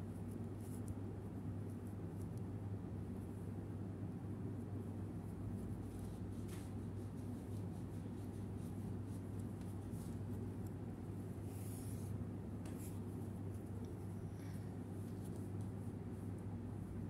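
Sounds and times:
steady low hum: 0:00.0 - 0:17.0
crochet hook scratching yarn: 0:05.3 - 0:10.7.

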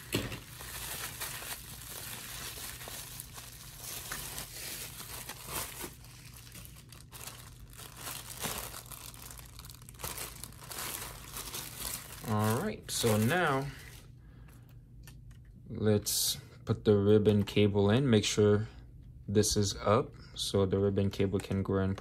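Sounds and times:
plastic packaging crinkling: 0:00.0 - 0:14.1.

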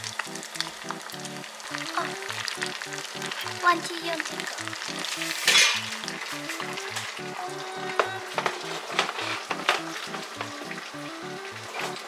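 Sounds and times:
oil sizzling and crackling: 0:00.0 - 0:12.0
sharp pops of frying oil: 0:04.2 - 0:07.1.

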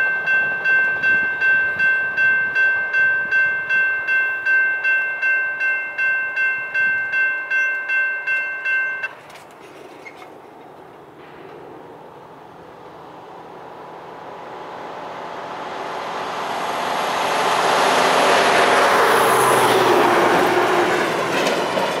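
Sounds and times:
road traffic noise: 0:00.0 - 0:22.0
heavy truck approaching: 0:09.8 - 0:22.0.

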